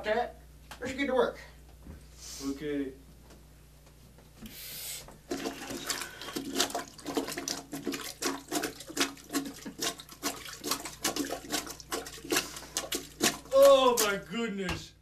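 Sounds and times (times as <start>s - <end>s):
plunger squelching in toilet bowl: 4.4s - 14.2s.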